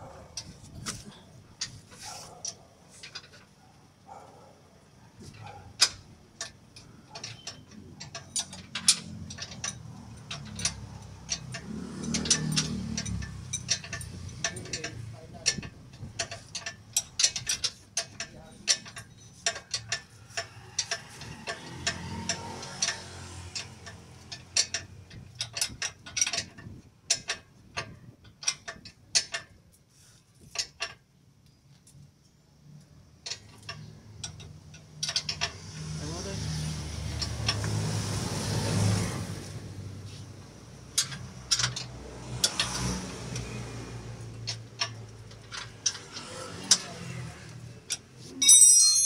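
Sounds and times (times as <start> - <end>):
metal ringing clatter: 5.3 - 29.5, 44.3 - 49.0
hand tools clicking on metal: 5.3 - 29.8, 33.2 - 38.2, 40.6 - 49.0.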